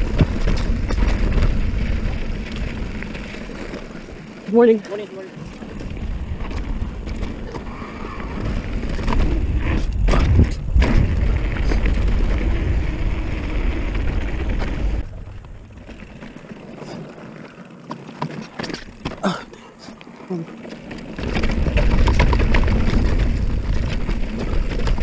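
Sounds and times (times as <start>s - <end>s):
bike knocking over bumps: 0.0s - 4.4s, 8.5s - 16.6s, 20.7s - 25.0s
bike clicks: 0.0s - 25.0s
bike tyres rolling on dirt: 0.0s - 25.0s
wind rushing on microphone: 5.6s - 15.6s.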